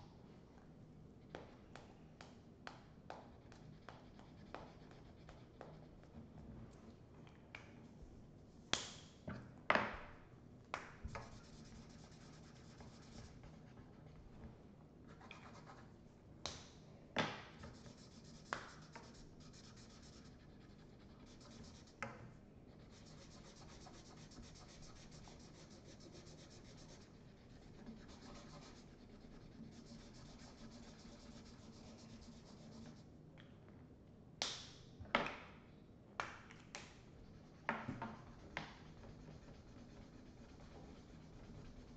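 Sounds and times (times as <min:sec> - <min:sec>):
felt-tip markers scratching on paper: 0:11.2 - 0:14.1, 0:17.6 - 0:22.0, 0:22.7 - 0:33.0, 0:37.3 - 0:41.9.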